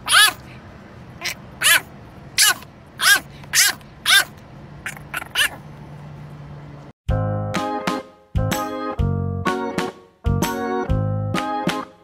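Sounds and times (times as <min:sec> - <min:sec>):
puppy yelping: 0:00.0 - 0:00.4, 0:01.2 - 0:05.6.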